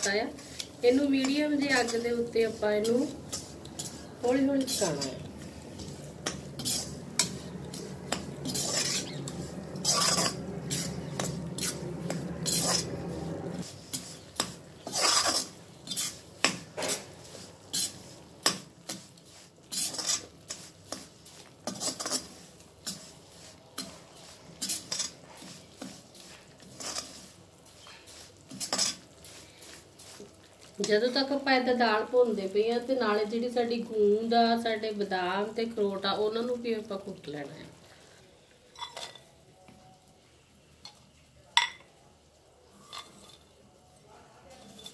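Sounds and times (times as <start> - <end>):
spatula scraping iron pan: 0.0 - 30.4, 44.6 - 44.9
low hum: 3.1 - 13.6.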